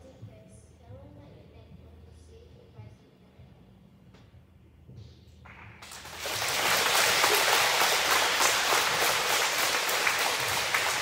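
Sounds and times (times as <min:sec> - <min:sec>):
audience applauding: 0:05.8 - 0:11.0.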